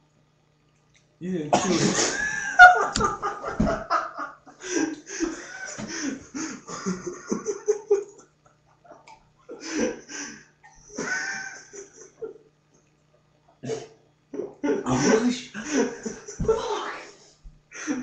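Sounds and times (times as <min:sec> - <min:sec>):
man laughing: 0:01.6 - 0:12.4, 0:14.4 - 0:16.7, 0:17.8 - 0:18.0.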